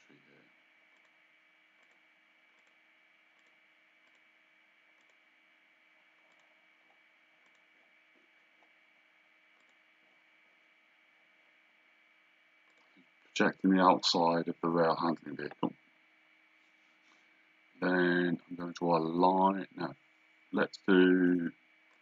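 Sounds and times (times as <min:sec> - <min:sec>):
computer mouse clicks: 0:00.9 - 0:01.2, 0:01.8 - 0:05.3, 0:06.1 - 0:07.9, 0:09.5 - 0:09.8
high-pitched whine: 0:13.4 - 0:15.8, 0:17.8 - 0:21.6.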